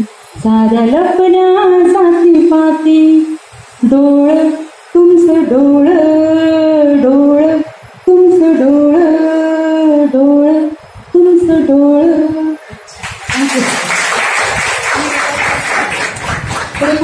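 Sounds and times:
woman singing unaccompanied: 0.0 - 12.9.

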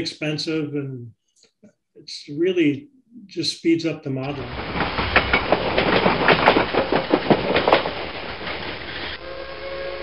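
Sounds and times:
train wheels clicking over rail joints: 4.2 - 9.2
train rumble: 4.2 - 10.0
multi-tone train whistle: 9.2 - 10.0.

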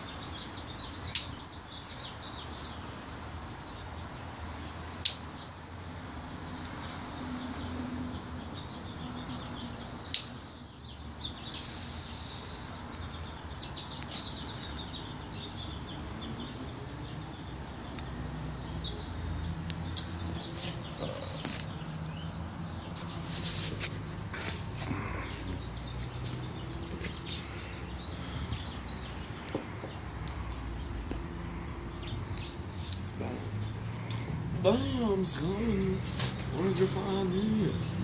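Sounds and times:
birds chirping faintly: 0.0 - 38.0
sharp click: 5.0 - 5.2.

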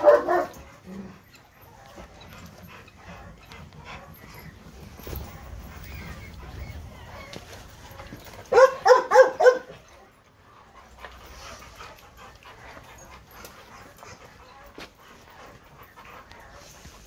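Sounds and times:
dog barking: 0.0 - 0.6, 8.5 - 9.8.

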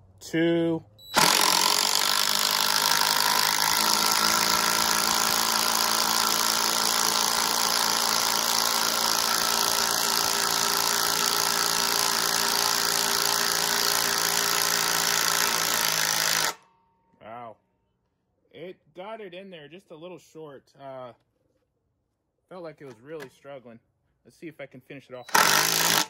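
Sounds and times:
impact driver hammering: 1.1 - 16.7, 25.3 - 26.0.

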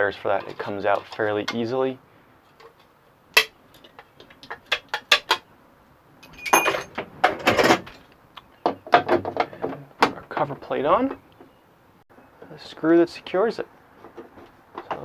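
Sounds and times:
metallic clicks and clinks: 6.2 - 7.0.

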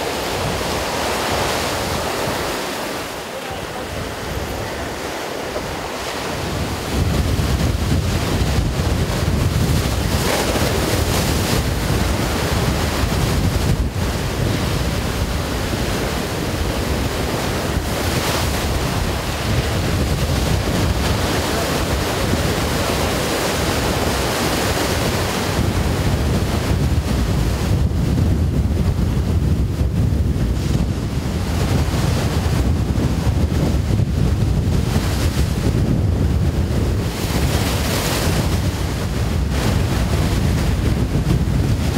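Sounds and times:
sea waves washing on shore: 0.0 - 41.9
wind rumbling on microphone: 0.0 - 41.9.

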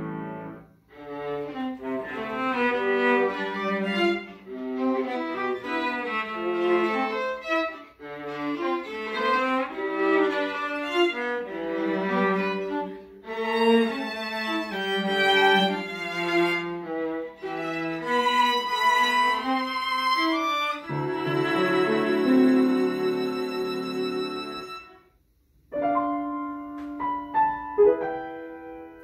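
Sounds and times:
string and piano quartet: 0.0 - 25.1, 25.8 - 29.0.

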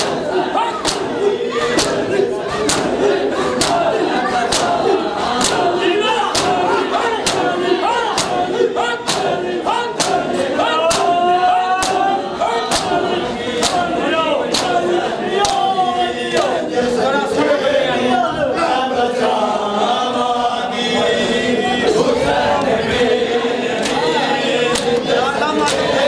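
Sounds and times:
men chanting together: 0.0 - 26.0
hands slapping bare chests: 0.8 - 1.1, 1.8 - 2.0, 3.6 - 3.9, 5.4 - 5.7, 10.0 - 10.3, 12.7 - 13.0.

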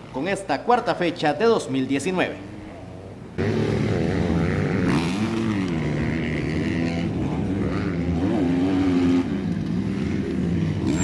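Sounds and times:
motorcycle engines revving: 2.4 - 11.0.

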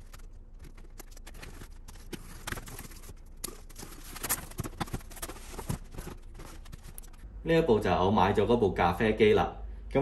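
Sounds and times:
cardboard flaps rustling and scraping: 0.0 - 7.2.

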